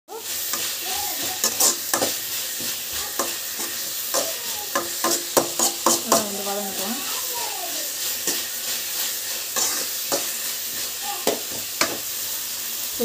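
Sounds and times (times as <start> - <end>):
fish sizzling in a pan: 0.1 - 13.0
spatula scraping a metal pan: 0.2 - 12.8.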